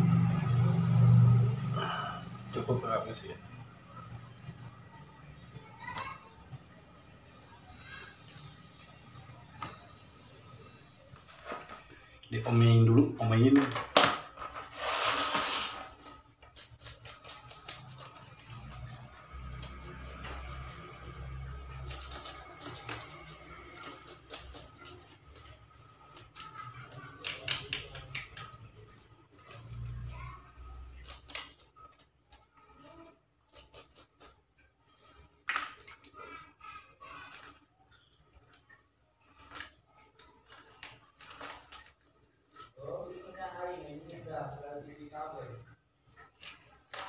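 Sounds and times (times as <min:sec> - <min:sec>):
scissors snipping through fish: 0:16.4 - 0:20.8, 0:21.8 - 0:29.5.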